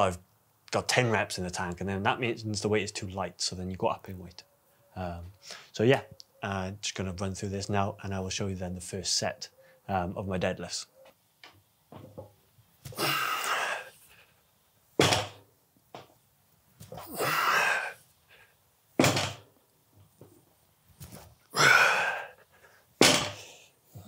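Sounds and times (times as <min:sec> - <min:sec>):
loud hissing breath: 0:17.0 - 0:18.6, 0:21.5 - 0:23.8
barbell plates knocking on floor: 0:23.0 - 0:23.4.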